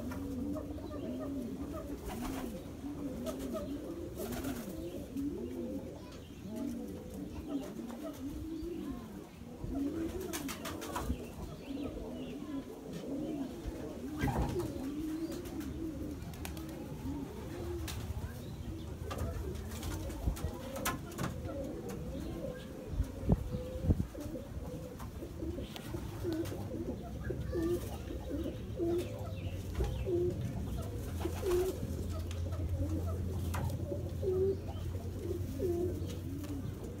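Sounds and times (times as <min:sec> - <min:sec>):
pigeons cooing: 0:00.0 - 0:37.0.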